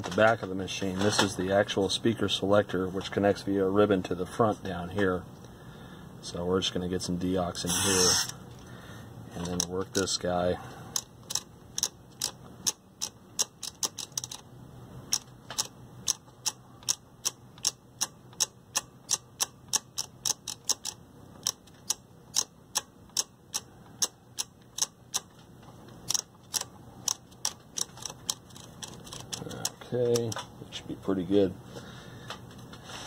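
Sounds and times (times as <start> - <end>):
rotary switch clicking: 10.9 - 14.4, 15.1 - 25.3, 26.0 - 30.5.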